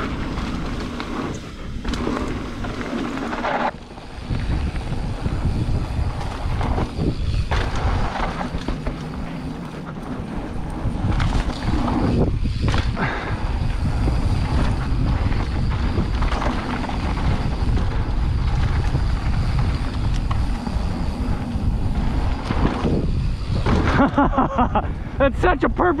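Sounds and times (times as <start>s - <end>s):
bike tyres on dirt trail: 0.0s - 26.0s
wind rumbling on microphone: 0.0s - 26.0s
bike knocking over bumps: 6.1s - 21.2s, 21.8s - 24.4s.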